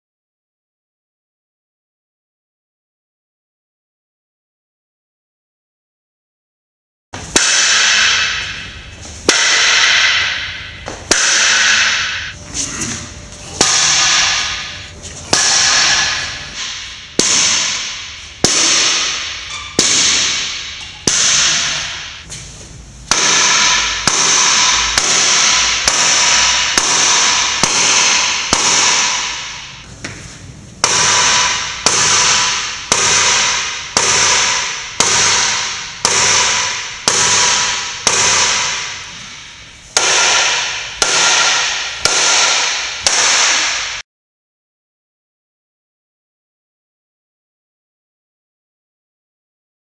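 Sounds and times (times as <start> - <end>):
sledgehammer clanging on metal: 9.3 - 22.3.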